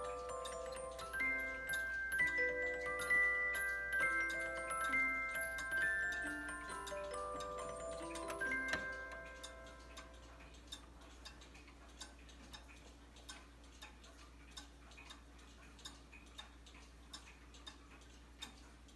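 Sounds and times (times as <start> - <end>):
cuckoo clock tune: 0.0 - 11.8
clock pendulum ticking: 0.0 - 18.9.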